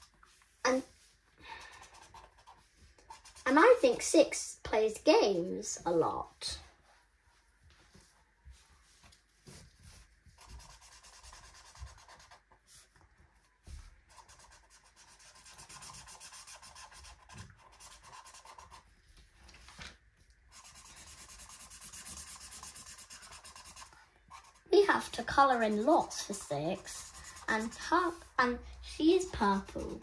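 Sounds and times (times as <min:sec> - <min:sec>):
marker scribbling on paper: 0:01.6 - 0:04.0, 0:10.4 - 0:12.6, 0:14.1 - 0:18.9, 0:20.5 - 0:30.0.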